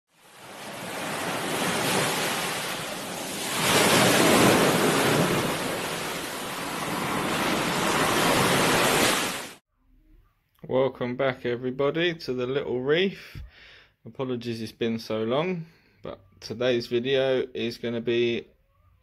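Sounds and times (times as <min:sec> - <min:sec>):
ocean waves washing in: 0:00.1 - 0:09.6.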